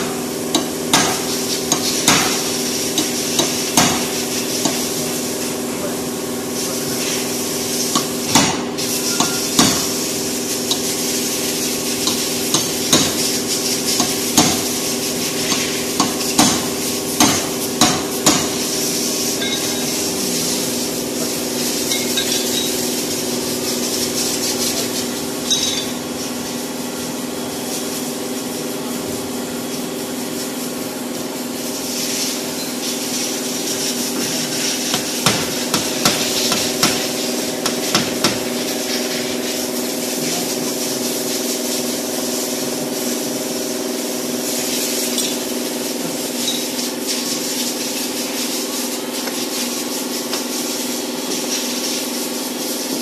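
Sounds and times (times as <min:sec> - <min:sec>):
steady hum and hiss: 0:00.0 - 0:53.0
dent-repair tool tapping car panel: 0:00.5 - 0:04.8, 0:09.2 - 0:09.9, 0:12.0 - 0:13.2, 0:14.0 - 0:14.7, 0:15.5 - 0:18.6, 0:34.9 - 0:38.5.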